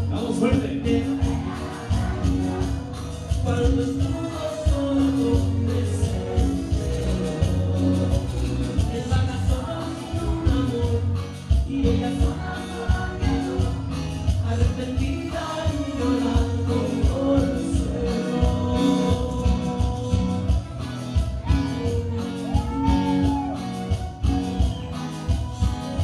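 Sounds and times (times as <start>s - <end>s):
person singing: 0.0s - 24.7s
live band playing: 0.0s - 26.0s
drum beat: 0.5s - 9.6s, 21.2s - 25.7s.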